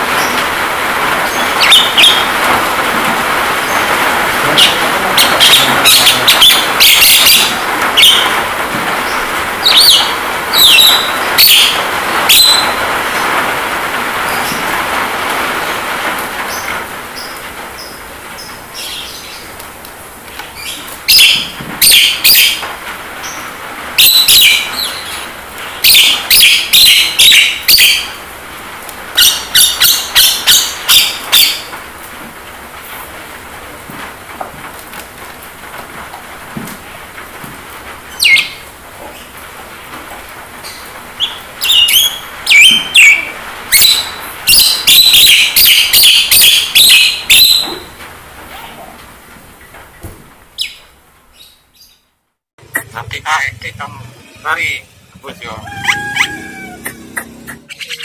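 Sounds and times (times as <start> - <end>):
rain hiss: 0.0 - 51.9, 52.6 - 58.0
bird calling sharp high notes: 52.7 - 58.0.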